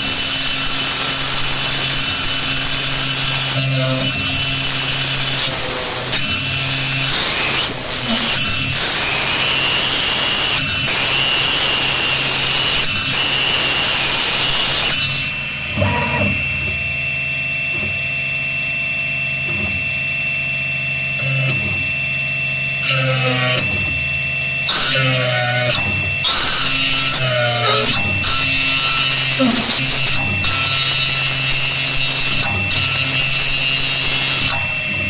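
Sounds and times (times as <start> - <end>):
mill spindle high whine: 0.0 - 35.0
drill bit cutting hiss: 0.2 - 16.2, 24.7 - 34.8.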